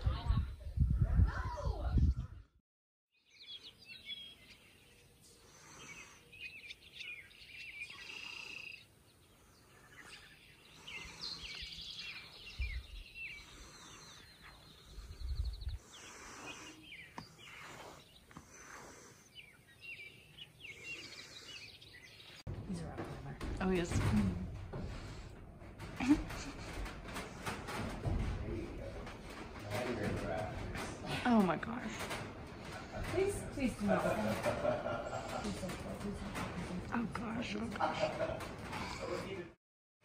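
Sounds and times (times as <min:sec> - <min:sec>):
songbirds chirping and singing: 0:03.2 - 0:24.1
low bumps: 0:22.4 - 0:39.6.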